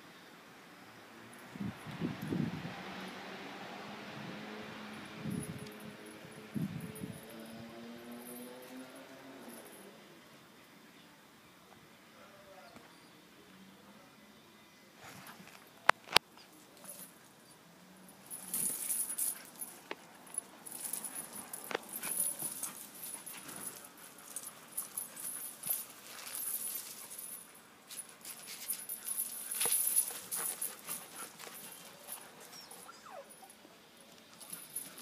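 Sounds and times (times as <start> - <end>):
metal chain jingling: 4.7 - 10.0, 16.7 - 35.0.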